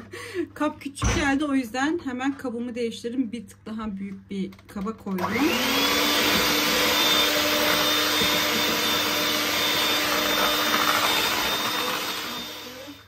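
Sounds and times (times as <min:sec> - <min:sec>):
electric hand mixer whirring: 0:05.2 - 0:13.0.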